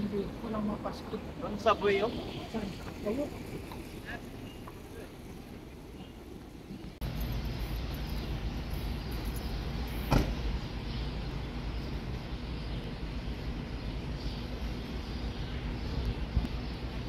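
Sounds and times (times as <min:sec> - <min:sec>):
city street traffic hum: 0:00.0 - 0:17.0
sharp knock: 0:10.1 - 0:10.4.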